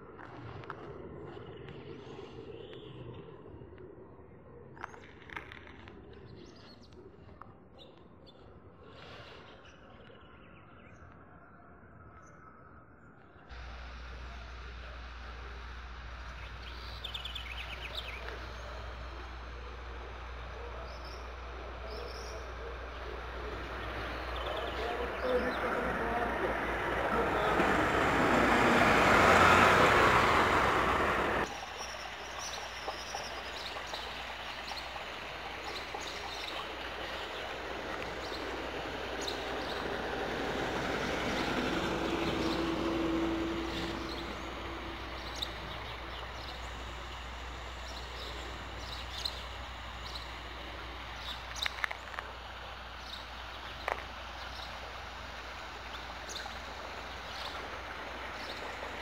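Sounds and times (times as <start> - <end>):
birds chirping: 4.5 - 59.0
vehicle passing: 13.5 - 31.6, 34.1 - 59.0.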